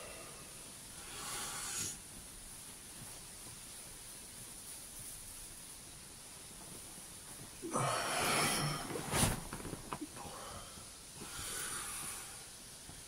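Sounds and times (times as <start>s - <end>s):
man breathing heavily: 7.6s - 9.2s, 10.1s - 12.6s.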